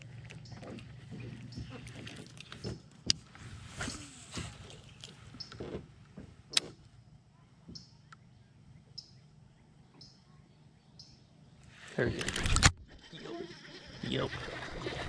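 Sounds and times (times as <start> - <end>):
handling rustling and knocks: 0.0 - 6.8
faint high chirps: 7.4 - 11.3.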